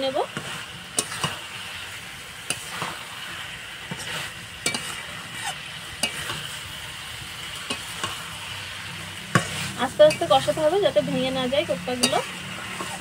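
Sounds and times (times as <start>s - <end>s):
masala sizzling in a pan: 0.0s - 13.0s.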